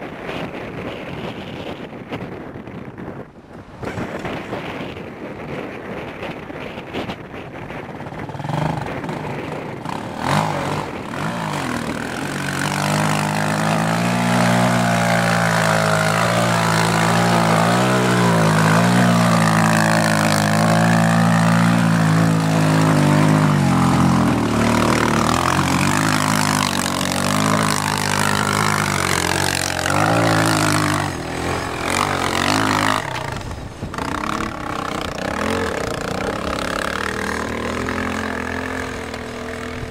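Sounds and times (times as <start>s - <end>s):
quad engine revving: 8.1s - 39.9s.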